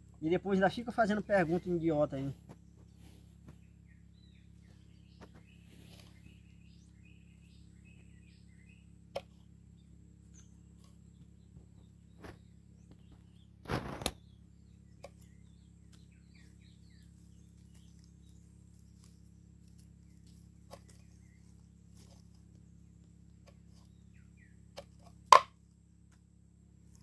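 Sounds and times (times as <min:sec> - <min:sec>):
low steady hum: 0:00.0 - 0:27.0
small birds chirping: 0:00.0 - 0:27.0
knife chopping on wood: 0:24.8 - 0:25.6.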